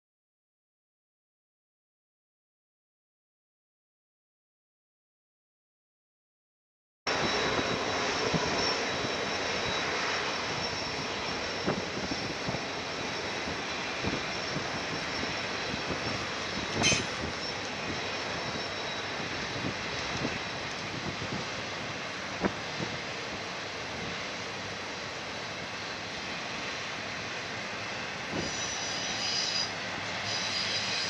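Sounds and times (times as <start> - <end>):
distant locomotive drone: 7.1 - 31.0.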